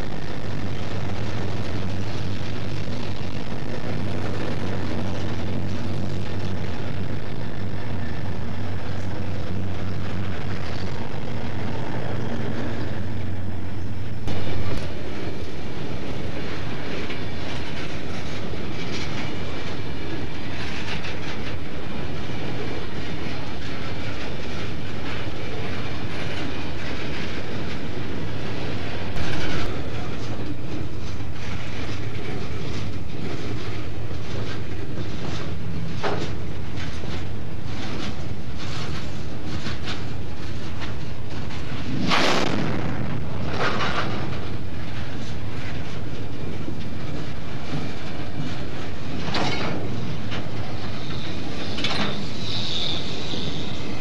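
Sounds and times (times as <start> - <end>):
diesel locomotive engines droning: 0.0 - 54.0
train wheels clattering over rail joints: 11.9 - 42.3, 43.3 - 54.0.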